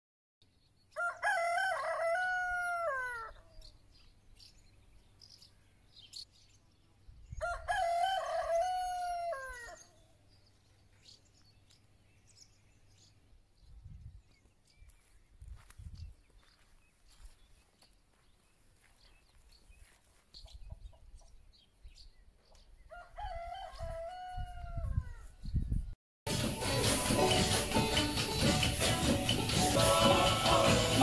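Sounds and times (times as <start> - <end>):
rooster crowing: 0.9 - 3.4, 7.4 - 9.9, 22.9 - 25.2
small birds chirping: 3.3 - 7.5, 9.7 - 23.1.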